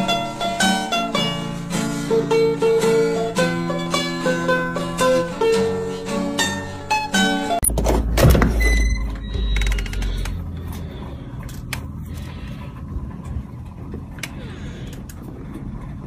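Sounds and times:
storm door creaking open: 0:07.7 - 0:10.4.

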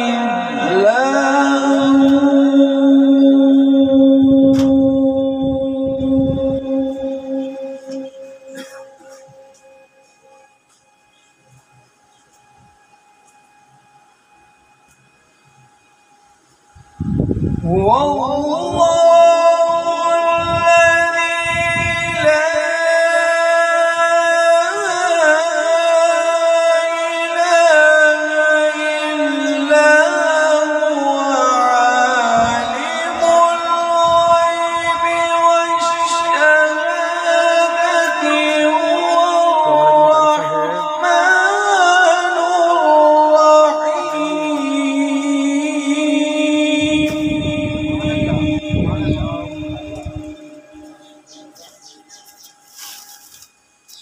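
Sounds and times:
man chanting into a microphone: 0:00.0 - 0:08.1, 0:17.6 - 0:51.0
man reciting melodically: 0:00.0 - 0:10.6, 0:17.5 - 0:54.0.

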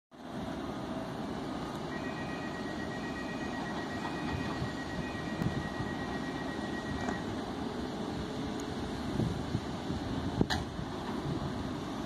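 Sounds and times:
locomotive low rumble: 0:00.2 - 0:12.0
thin high whine: 0:01.7 - 0:07.4.

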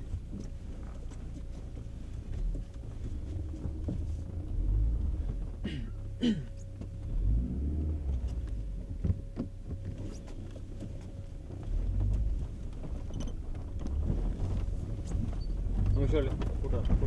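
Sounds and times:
car engine and road rumble: 0:00.0 - 0:17.0.

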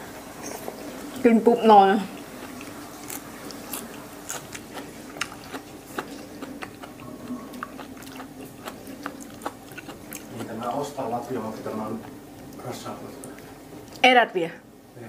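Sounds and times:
faint low hum: 0:00.0 - 0:15.0
chewing herbs with wet crunches: 0:02.0 - 0:14.0.

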